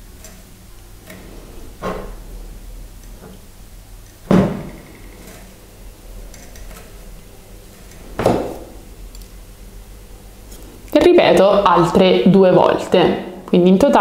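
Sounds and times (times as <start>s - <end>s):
sharp knocks: 4.3s - 5.1s, 8.1s - 8.8s.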